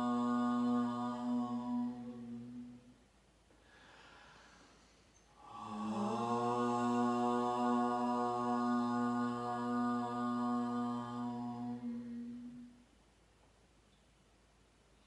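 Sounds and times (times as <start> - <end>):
man and woman chanting: 0.0 - 2.9, 5.4 - 12.8
quiet breath: 0.0 - 7.2, 10.4 - 12.9.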